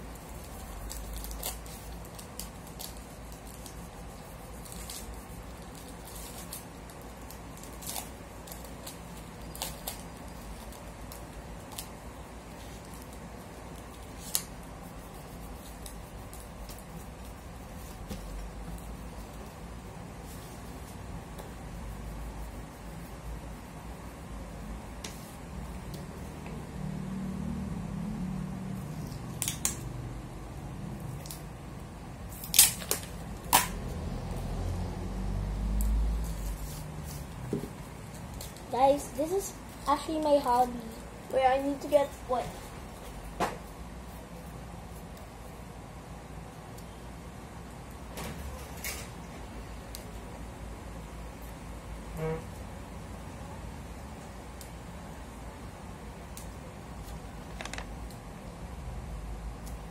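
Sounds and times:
low steady hum: 0.0s - 59.9s
paper crackling and snapping: 0.1s - 19.5s, 32.3s - 33.8s, 56.3s - 58.2s
paper clicks and rustles: 57.0s - 58.2s.

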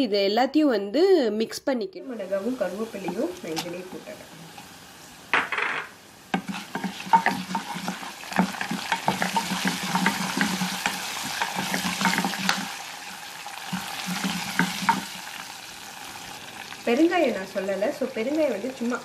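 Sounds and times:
spices sizzling in hot oil: 2.0s - 19.0s
wooden spoon scraping pan: 2.4s - 3.9s, 6.3s - 12.8s, 13.7s - 15.2s.

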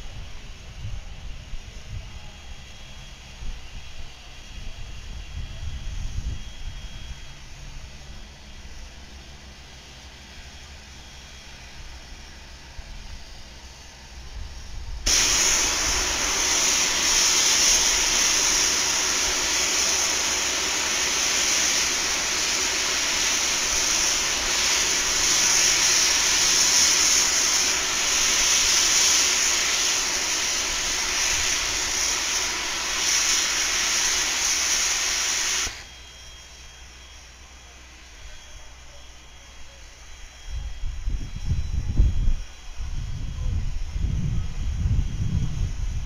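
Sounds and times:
steam hissing from safety valve: 15.0s - 36.0s.

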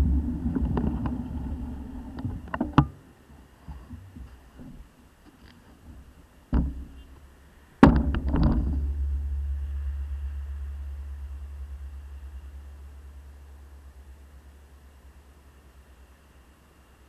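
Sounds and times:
low rumble: 0.0s - 2.5s, 7.8s - 17.0s
loud thump with rattle: 6.5s - 7.0s, 7.8s - 10.2s.

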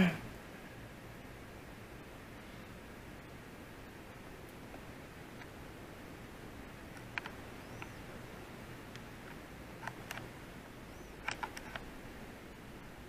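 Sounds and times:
room hiss: 0.0s - 13.0s
soft clicks: 6.9s - 8.1s, 8.8s - 10.3s, 11.1s - 11.9s.

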